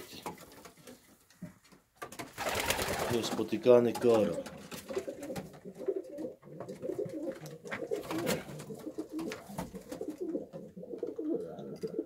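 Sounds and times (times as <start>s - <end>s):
pigeons cooing: 4.3s - 12.0s.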